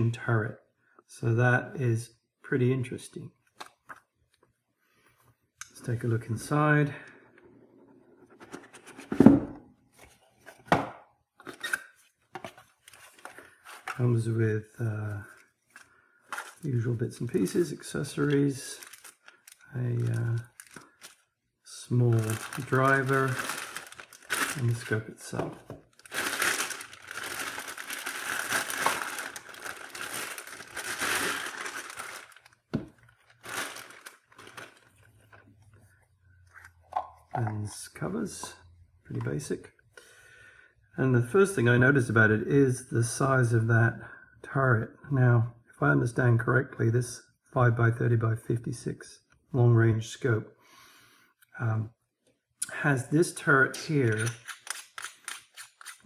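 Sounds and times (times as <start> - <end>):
plastic bag crinkling: 18.1 - 21.3, 22.0 - 35.7
cardboard and packing rustling: 18.2 - 21.2, 22.1 - 35.6.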